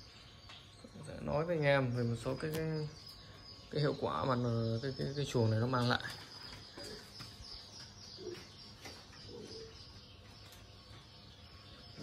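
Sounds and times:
faint bird cooing: 8.2 - 10.0.

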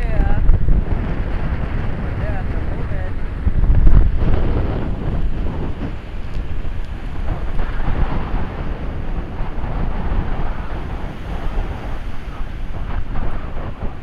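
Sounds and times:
waves washing up a beach: 0.0 - 14.0
wind buffeting microphone: 0.0 - 14.0.

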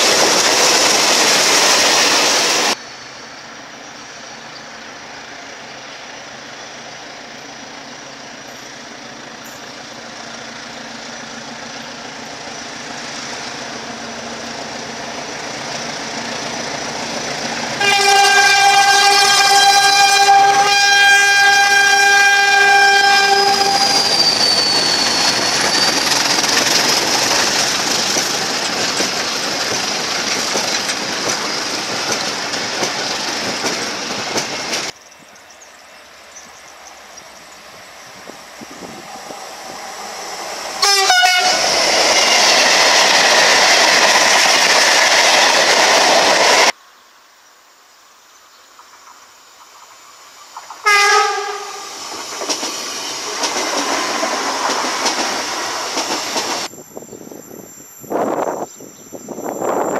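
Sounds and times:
train rumbling past: 0.0 - 46.8, 48.6 - 59.9
train horn: 17.8 - 25.3, 38.9 - 41.8, 50.8 - 52.0.

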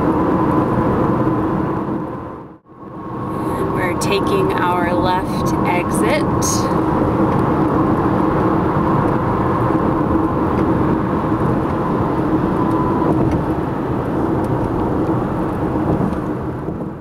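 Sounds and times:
car cabin road and engine hum: 0.0 - 17.0
faint constant drone: 2.6 - 7.2.

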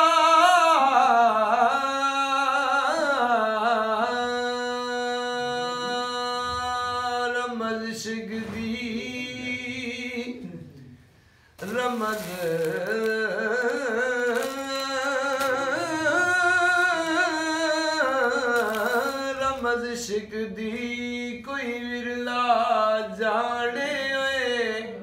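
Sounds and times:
man singing held notes: 11.6 - 20.4.

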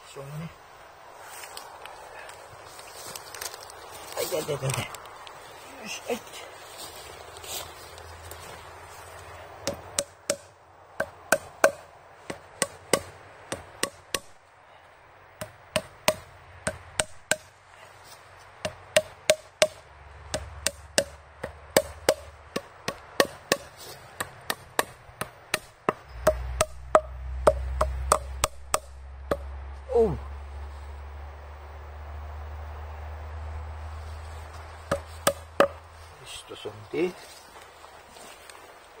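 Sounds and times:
hammer tapping plugs into log: 21.8 - 29.4.

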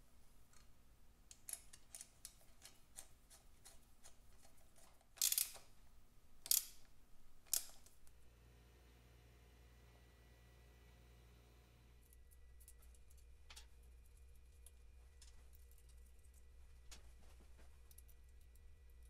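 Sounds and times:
metal fitting clicking: 5.2 - 5.6, 6.4 - 6.8, 7.5 - 7.8.

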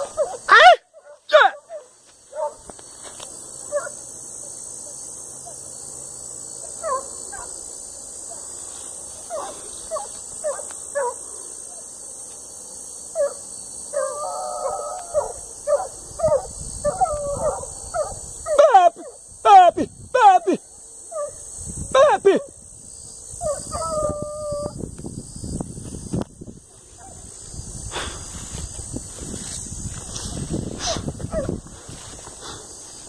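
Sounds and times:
hunting dogs barking and yelping: 0.0 - 2.8, 3.6 - 5.7, 6.6 - 11.9, 13.1 - 19.6, 21.0 - 22.5, 23.4 - 24.8, 26.7 - 27.4, 30.0 - 32.2
dog long held cry: 14.0 - 18.8.

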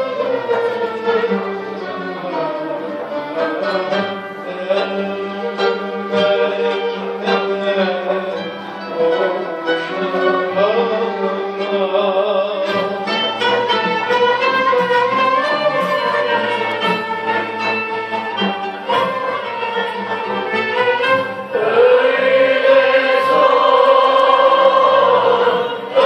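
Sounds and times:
classical ensemble with bowed strings: 0.0 - 26.0.

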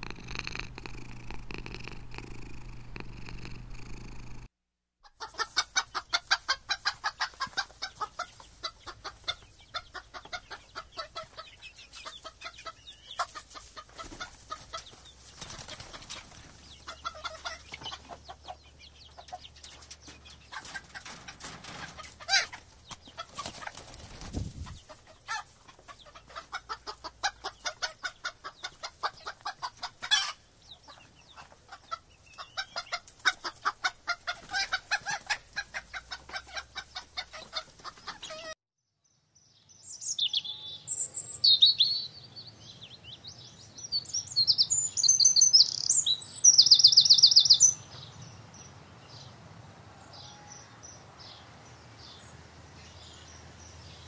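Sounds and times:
hens clucking: 5.0 - 38.6.

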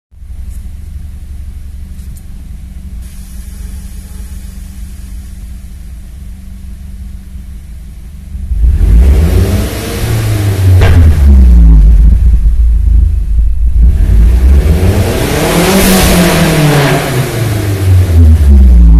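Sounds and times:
car engine idling and revving: 0.2 - 18.9
turbo rushing hiss: 3.0 - 5.6.

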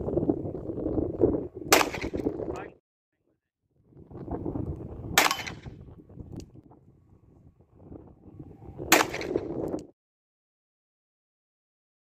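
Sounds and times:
wind rumbling on microphone: 0.0 - 2.8, 3.7 - 9.9
revolver gunshot: 1.7 - 2.3, 5.1 - 5.8, 8.9 - 9.5.

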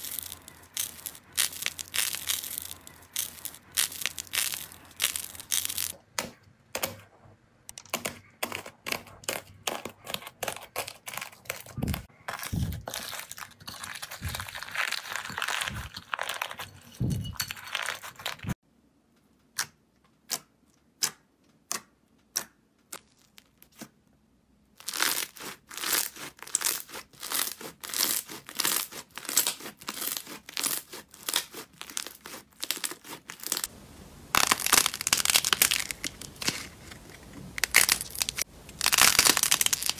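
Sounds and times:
slime crackling and popping: 0.0 - 6.0, 24.8 - 39.9.

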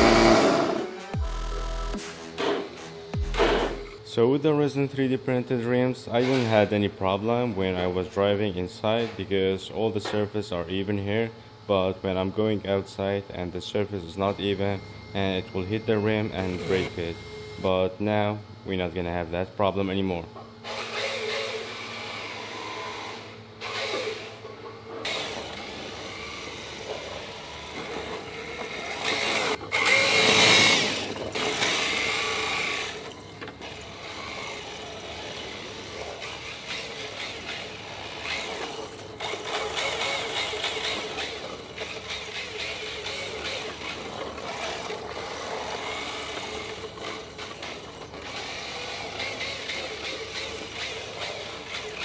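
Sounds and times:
small electric motor whining: 0.0 - 4.0, 14.2 - 17.8, 20.6 - 52.0.

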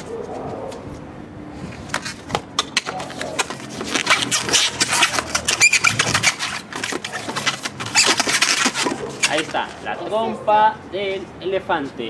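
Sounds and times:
rubber balloon squeaking: 2.7 - 9.8.

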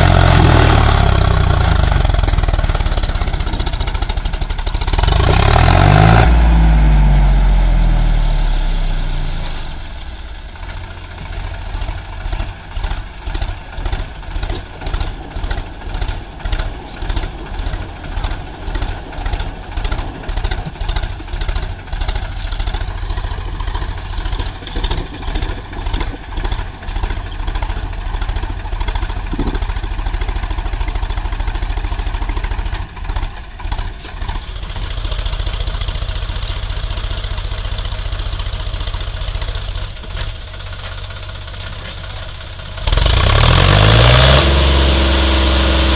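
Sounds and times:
tractor diesel engine revving: 0.0 - 45.9.

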